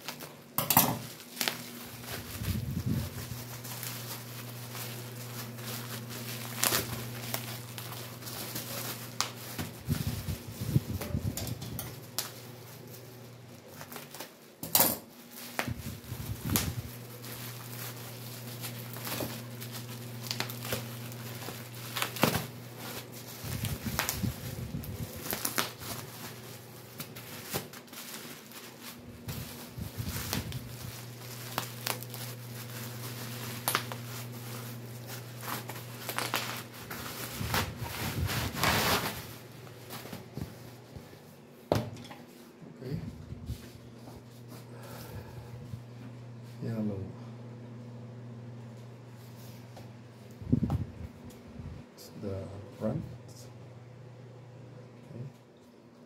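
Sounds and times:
bubble-wrap mailer crinkling: 0.0s - 41.2s
steady low hum: 0.4s - 55.6s.

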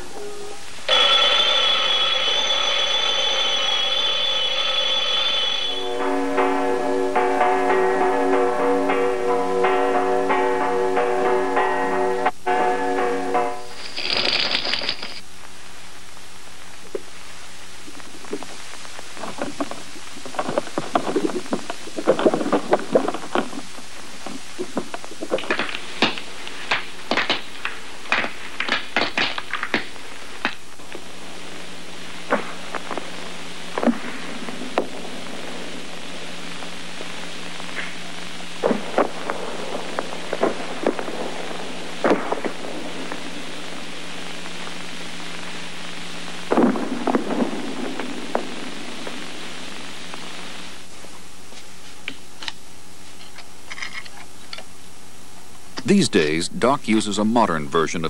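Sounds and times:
old film hiss: 0.0s - 58.0s
popcorn popping in a pan: 18.0s - 31.0s.

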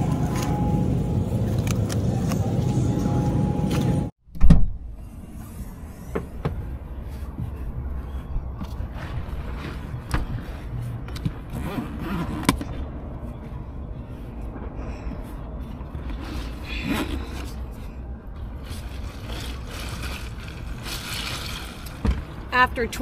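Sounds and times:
fabric scraping and rustling: 18.6s - 22.1s.

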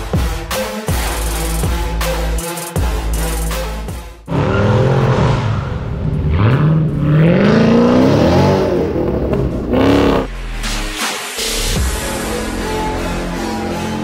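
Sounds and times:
car engine revving: 4.2s - 10.8s.

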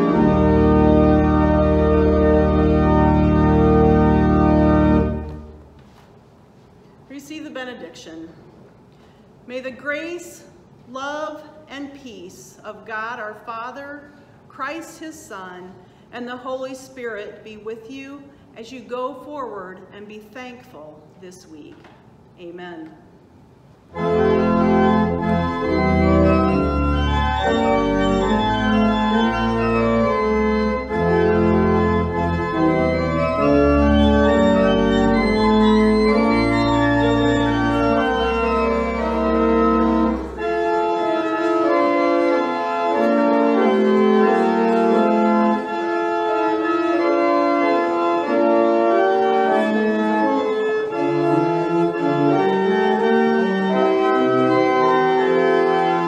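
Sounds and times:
deep organ pedal bass: 0.0s - 5.3s, 24.0s - 56.0s
organ playing held chords: 0.0s - 5.6s, 23.9s - 56.0s.

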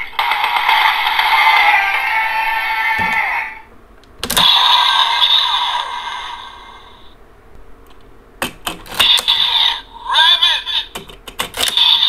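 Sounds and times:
sharp plastic clicks: 7.8s - 9.3s, 10.9s - 12.0s.

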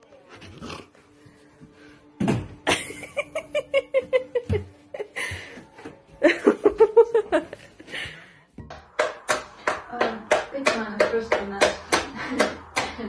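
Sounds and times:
person laughing: 2.7s - 5.4s, 12.1s - 12.7s.

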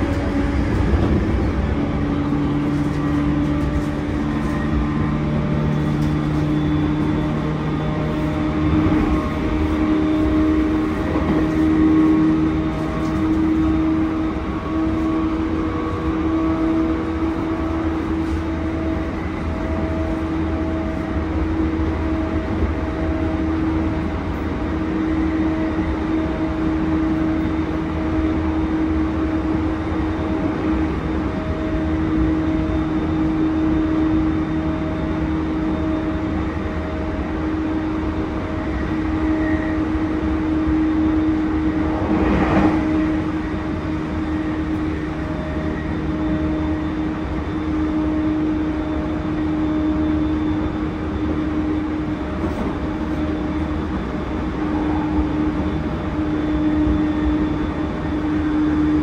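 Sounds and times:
constant electric motor tone: 0.0s - 59.0s
train wheels rumbling on rail: 0.0s - 59.0s.

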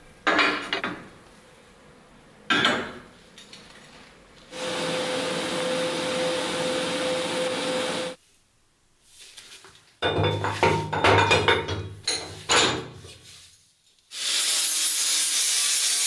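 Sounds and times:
steady hum: 4.5s - 8.2s
welding arc hissing: 4.5s - 8.2s, 14.1s - 16.0s.

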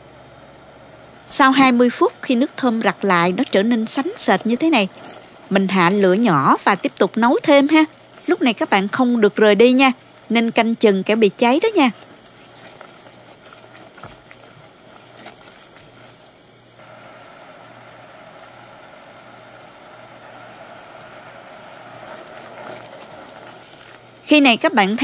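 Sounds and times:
juice simmering and bubbling: 0.0s - 25.0s
spatula stirring: 3.1s - 16.7s, 20.1s - 24.4s.

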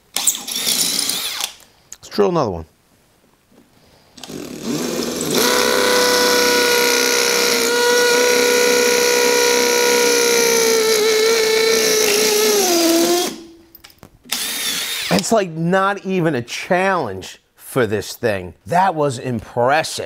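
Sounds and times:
hammer drill boring into concrete: 0.2s - 1.6s, 4.2s - 13.5s, 14.3s - 15.2s.

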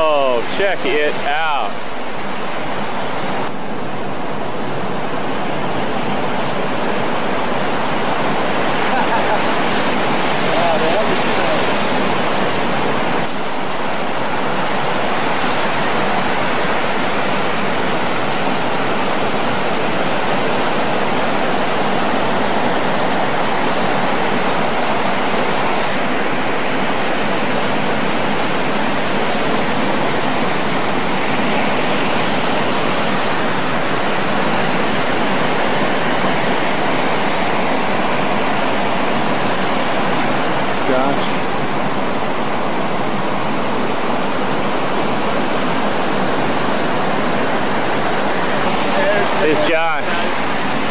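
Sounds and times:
ocean surf breaking: 0.0s - 50.9s.

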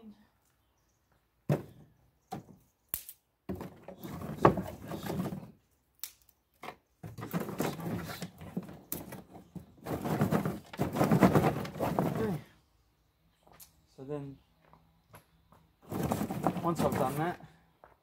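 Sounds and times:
branches snapping: 2.9s - 3.2s, 6.0s - 6.4s.

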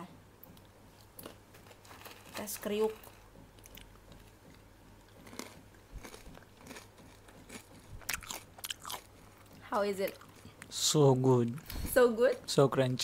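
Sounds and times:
crunching fried potato: 1.0s - 10.8s.

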